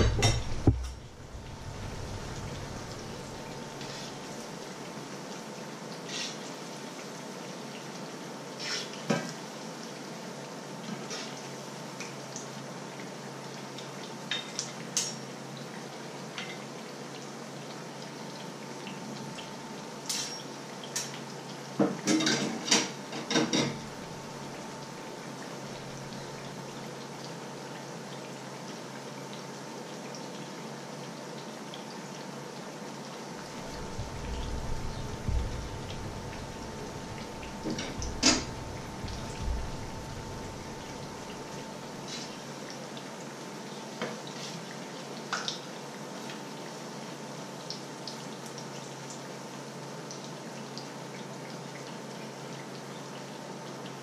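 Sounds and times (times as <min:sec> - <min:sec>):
metal utensils knocking on frying pan: 0:00.0 - 0:01.0
fritters frying in oil: 0:00.0 - 0:54.0.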